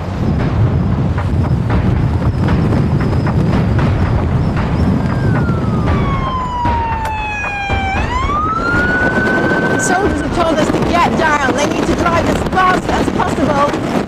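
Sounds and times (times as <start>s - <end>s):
fast vehicle noise: 0.0s - 14.0s
wind buffeting microphone: 0.0s - 14.0s
knocks: 0.3s - 11.1s
police siren wailing: 4.8s - 11.9s.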